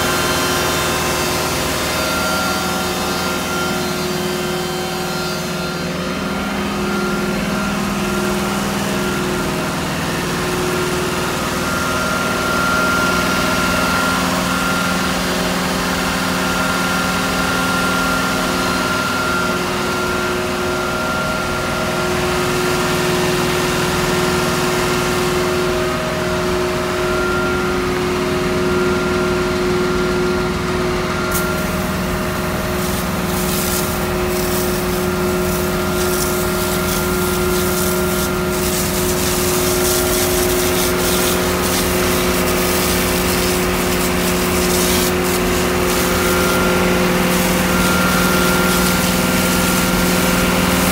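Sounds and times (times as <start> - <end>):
truck machine hum with whine: 0.0 - 50.9
fluid spraying in hissing spurts: 31.3 - 50.9.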